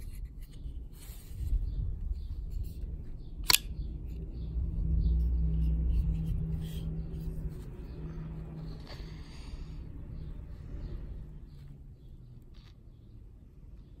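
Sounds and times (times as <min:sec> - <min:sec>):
low rumble: 0:01.4 - 0:12.2
folding knife blade snapping open: 0:03.4 - 0:03.7.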